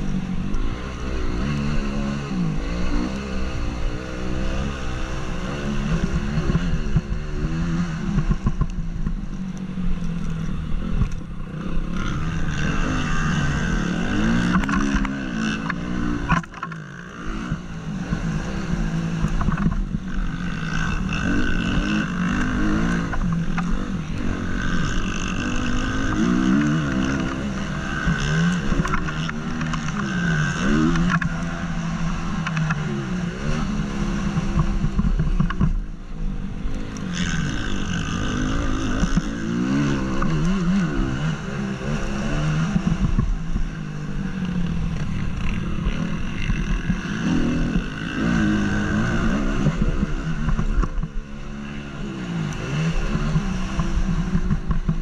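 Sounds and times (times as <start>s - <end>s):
motocross bike engine revving: 0.0s - 55.0s.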